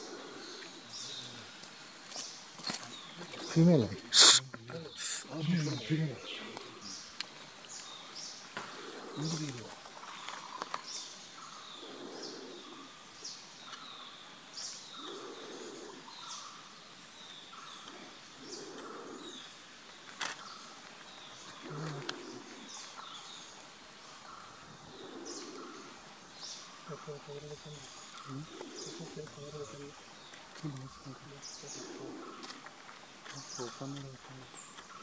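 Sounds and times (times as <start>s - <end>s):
higher short bird calls: 4.0s - 6.9s.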